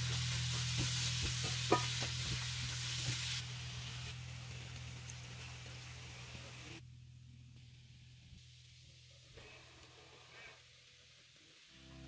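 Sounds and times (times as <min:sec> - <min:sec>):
food sizzling in a frying pan: 0:00.0 - 0:06.8
steady low hum: 0:00.0 - 0:10.1.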